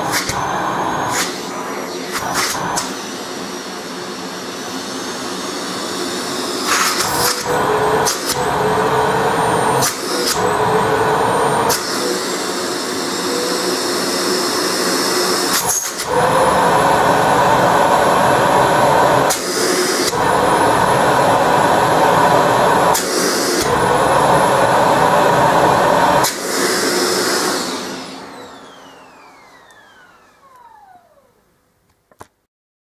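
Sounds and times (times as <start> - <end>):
vacuum cleaner running: 0.0 - 31.5
motor winding down: 6.6 - 31.4.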